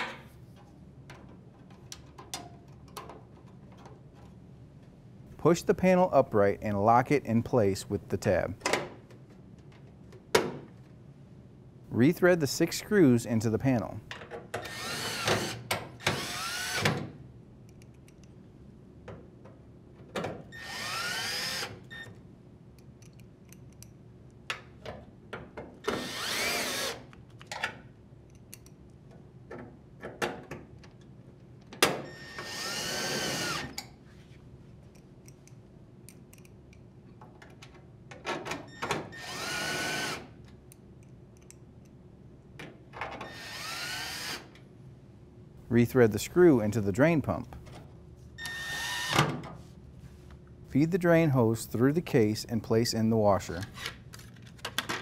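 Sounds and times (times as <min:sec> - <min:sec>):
drill motor whirring: 0:14.6 - 0:16.9, 0:20.5 - 0:22.0, 0:25.9 - 0:27.1, 0:32.1 - 0:33.7, 0:39.1 - 0:40.3, 0:43.2 - 0:44.5, 0:48.4 - 0:49.2.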